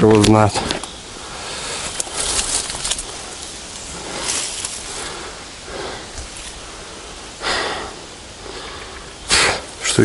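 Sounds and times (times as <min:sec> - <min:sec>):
light cracks of branches: 0:00.0 - 0:01.0, 0:01.9 - 0:05.0
rustling of brush and branches: 0:00.0 - 0:10.0.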